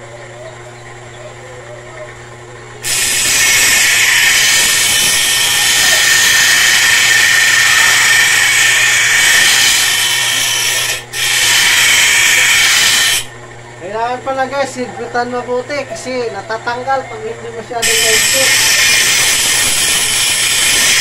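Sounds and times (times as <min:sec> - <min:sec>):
blade grinding on grinding wheel: 0:02.8 - 0:13.4, 0:17.8 - 0:21.0.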